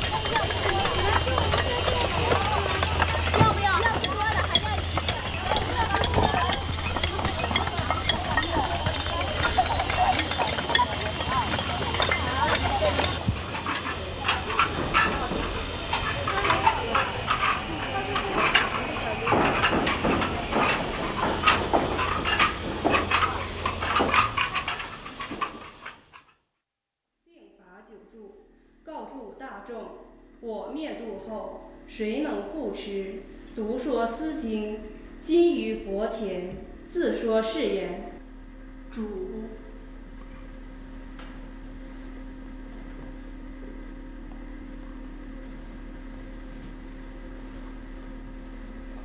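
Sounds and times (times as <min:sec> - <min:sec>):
tools clinking on stone: 0:00.0 - 0:13.9, 0:16.0 - 0:25.6
low hum: 0:00.0 - 0:49.0.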